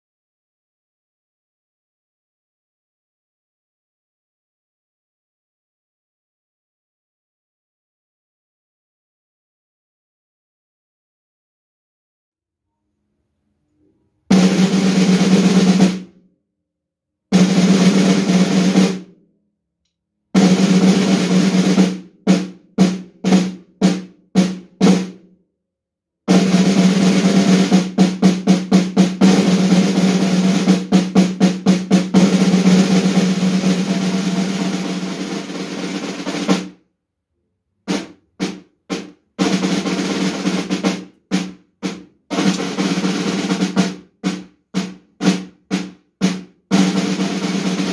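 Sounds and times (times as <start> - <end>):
snare drum rolls and strokes: 14.3 - 16.1, 17.3 - 19.1, 20.4 - 25.2, 26.3 - 36.8, 37.9 - 47.9.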